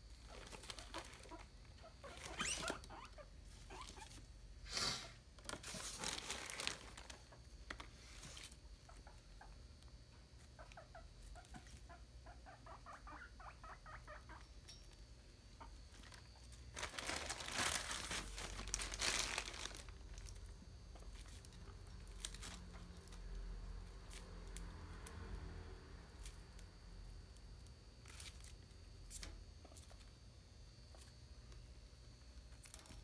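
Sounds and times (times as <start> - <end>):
crinkling rustle: 0.2 - 2.9, 5.4 - 8.6, 15.9 - 23.4, 28.0 - 30.1
guinea pig squeaking: 0.2 - 4.3, 10.4 - 15.0.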